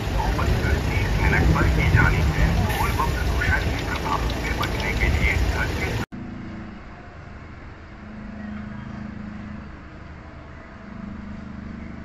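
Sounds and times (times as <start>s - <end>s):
traffic hiss: 0.0s - 6.1s
vehicle engines droning: 0.0s - 12.0s.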